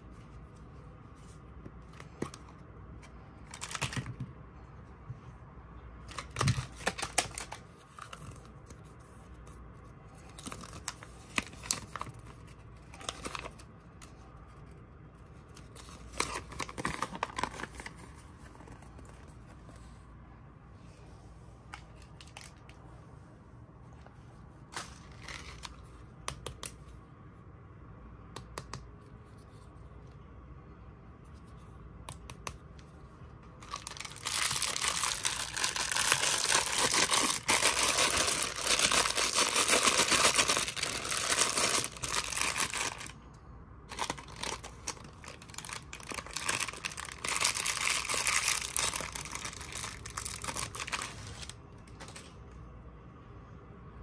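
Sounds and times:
wrapper crinkling: 0:33.6 - 0:43.2, 0:43.9 - 0:52.3.

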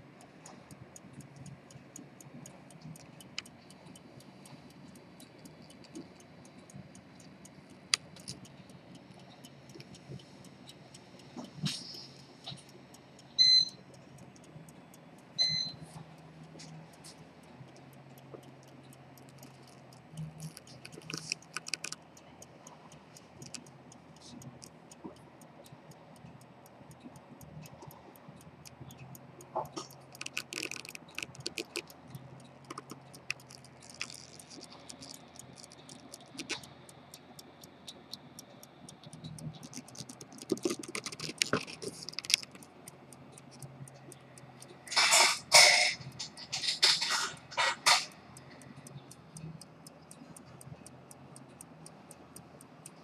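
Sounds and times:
low steady hum: 0:00.0 - 0:53.0
small metallic clicks and taps: 0:00.0 - 0:53.0
short high electronic beeps: 0:13.4 - 0:13.8, 0:15.4 - 0:15.8.

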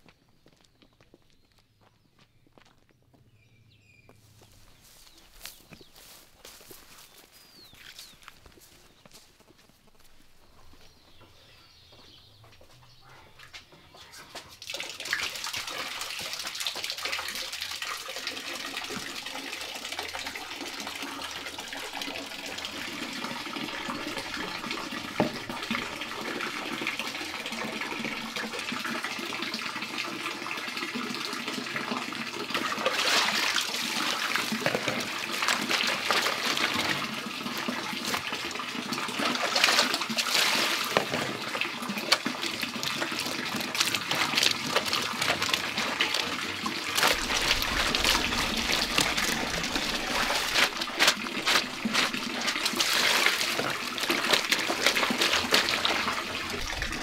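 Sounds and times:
water poured from tub: 0:14.5 - 0:30.0, 0:30.7 - 0:57.0
water splashing into basin: 0:14.6 - 0:29.0, 0:31.0 - 0:57.0.

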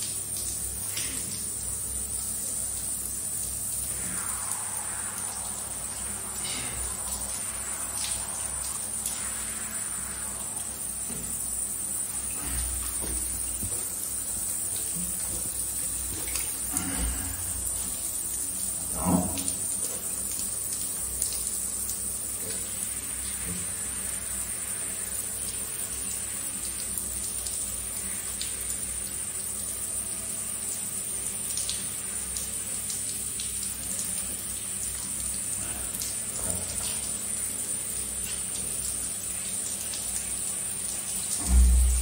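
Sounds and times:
faint drips: 0:00.0 - 0:42.0
shower water splashing: 0:00.0 - 0:42.0.

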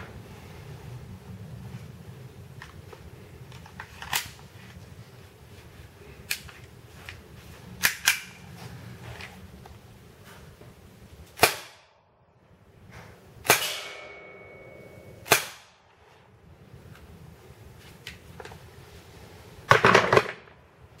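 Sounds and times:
airsoft pistol shots: 0:11.4 - 0:11.9, 0:13.4 - 0:14.4, 0:15.2 - 0:15.8
thin metallic ring: 0:13.7 - 0:15.3.

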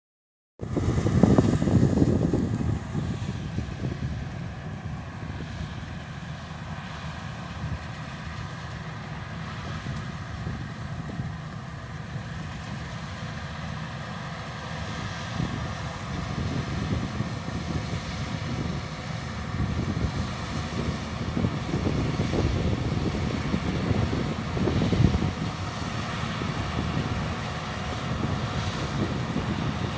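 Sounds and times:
combine harvester droning: 0:00.6 - 0:29.9.

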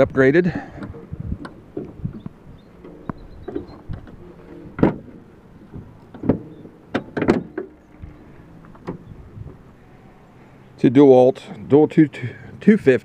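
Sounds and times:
metal clicks and clunks: 0:00.7 - 0:09.6.

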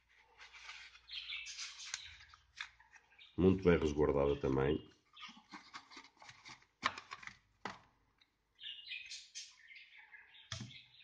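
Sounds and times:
packaging rustling: 0:05.2 - 0:07.7.

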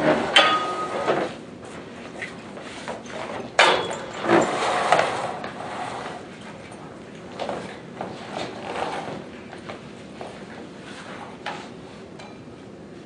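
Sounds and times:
metal furniture clattering: 0:00.0 - 0:01.4, 0:02.7 - 0:09.3
chairs knocking and scraping: 0:02.8 - 0:06.2.

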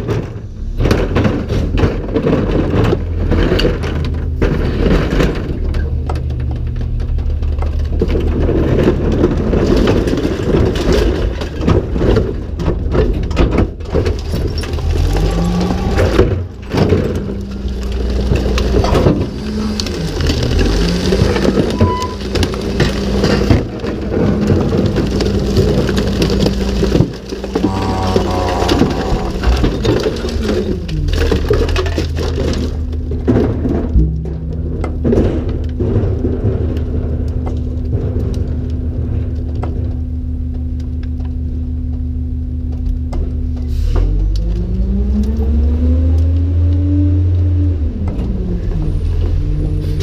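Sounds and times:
recyclables clattering and crunching: 0:00.0 - 0:50.0
garbage truck engine revving: 0:13.7 - 0:39.3, 0:43.7 - 0:50.0.

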